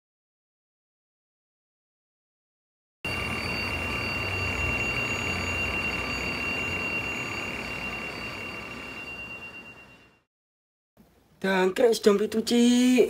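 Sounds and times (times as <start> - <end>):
phone alarm ringing: 3.1 - 10.3.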